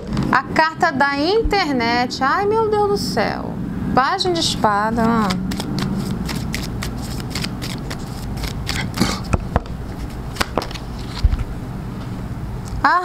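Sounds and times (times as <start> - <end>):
low steady hum: 0.0 - 13.0
cards being shuffled: 5.0 - 11.5.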